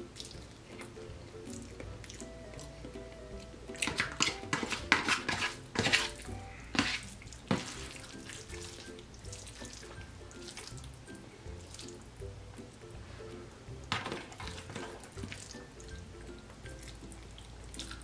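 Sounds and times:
slurping and eating: 0.0s - 12.2s, 13.0s - 18.0s
background music: 0.0s - 18.0s
fork scraping plastic tray: 3.8s - 7.7s.

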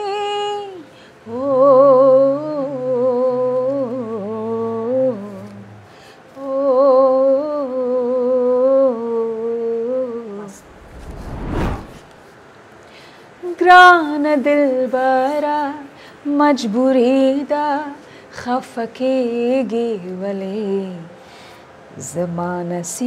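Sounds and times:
rising whoosh: 10.5s - 12.1s.

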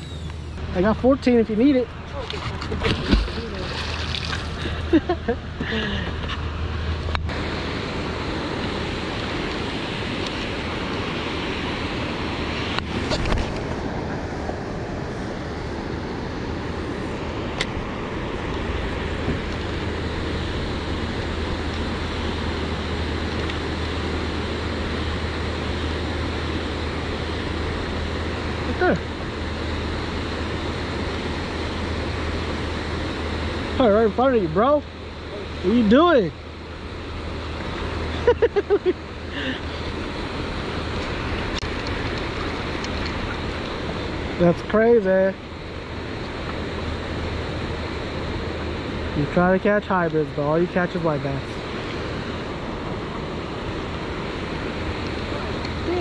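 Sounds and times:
low steady hum: 0.0s - 56.0s
wind: 0.0s - 56.0s
moving water: 0.5s - 56.0s
water rushing through spillway: 2.2s - 4.7s
person laughing: 4.6s - 6.2s, 38.1s - 39.8s.

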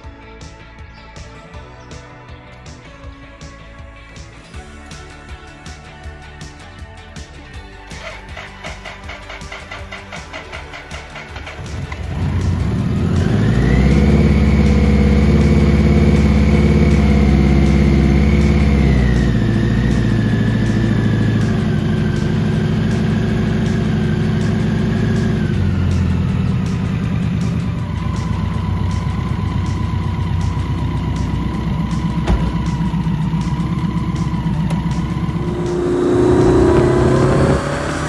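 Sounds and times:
motorcycle engine idling: 7.9s - 37.7s
high whine: 30.8s - 38.0s.

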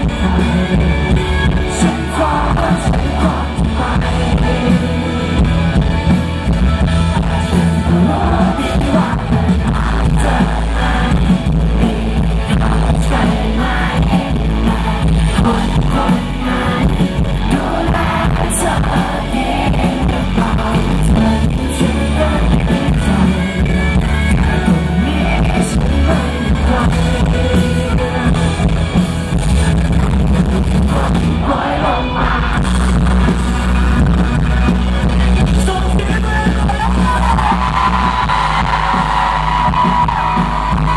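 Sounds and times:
man singing into microphone: 0.0s - 5.7s, 7.2s - 28.8s, 35.0s - 38.0s
pop-rock band playing live: 0.0s - 40.9s.

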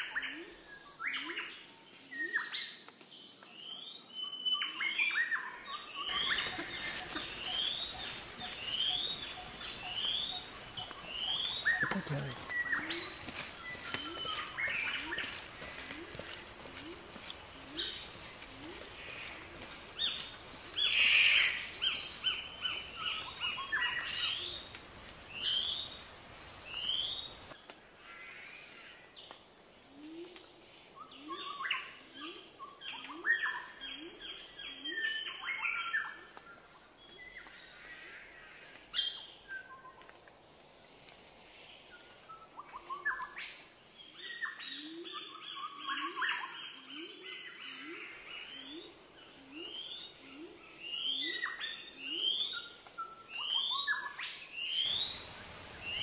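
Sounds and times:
birds high chirps: 0.0s - 27.6s, 47.7s - 56.0s.

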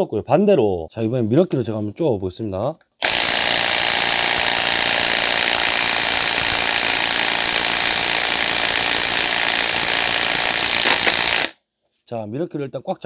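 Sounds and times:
impact wrench hammering: 3.0s - 11.6s.

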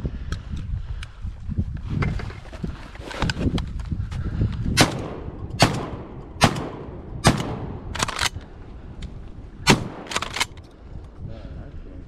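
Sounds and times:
shotgun blasts: 4.8s - 8.3s, 9.6s - 10.5s.

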